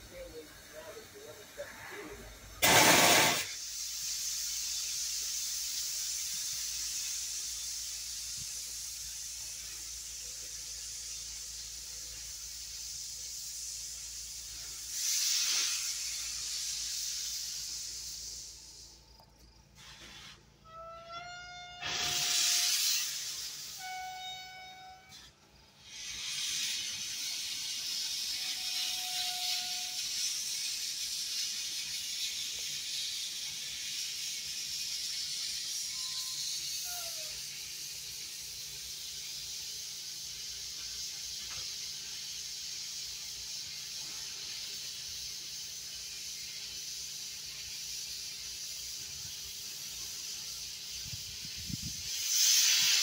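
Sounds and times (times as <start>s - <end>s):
steam locomotive hissing: 0.0s - 53.0s.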